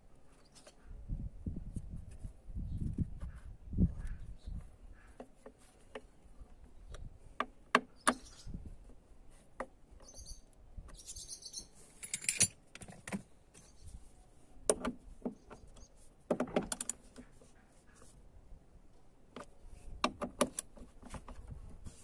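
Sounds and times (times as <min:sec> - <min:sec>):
hand tools clicking and knocking: 0:12.0 - 0:13.2.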